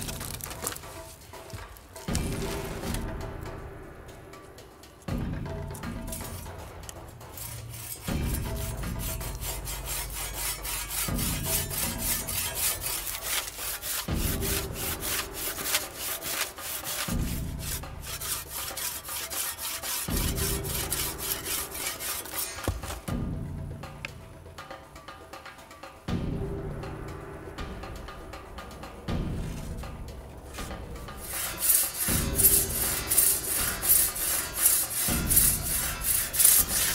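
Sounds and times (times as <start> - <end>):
percussive background music: 0.0 - 36.9
handsaw rasping through wood: 7.2 - 23.1, 31.2 - 36.9.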